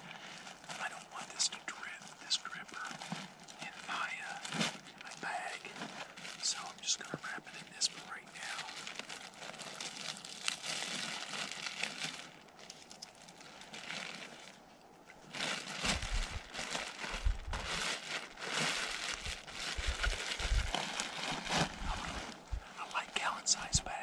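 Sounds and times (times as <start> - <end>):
footsteps crunching dry leaves: 0.4 - 6.9, 8.3 - 14.6, 15.2 - 24.0
deep low thumps: 15.9 - 16.5, 17.1 - 17.7, 19.1 - 20.8, 21.4 - 22.7.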